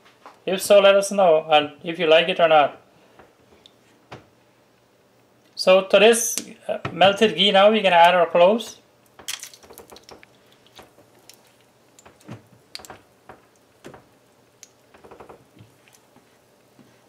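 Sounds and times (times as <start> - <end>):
spices crackling in hot fat: 8.8 - 17.0.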